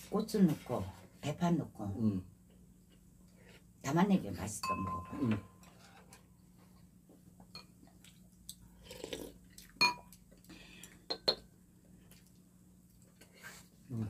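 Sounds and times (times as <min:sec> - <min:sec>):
utensils clinking on ceramic bowls: 0:04.6 - 0:05.8
quiet chewing: 0:07.8 - 0:11.1, 0:11.8 - 0:13.9.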